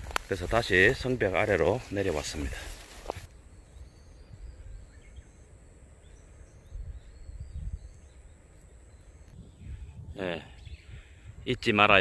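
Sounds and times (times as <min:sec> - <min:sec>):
faint bird chirps: 0:00.6 - 0:11.7
thin steady high whine: 0:02.3 - 0:09.6
wind noise on microphone: 0:06.5 - 0:08.3, 0:09.2 - 0:12.0.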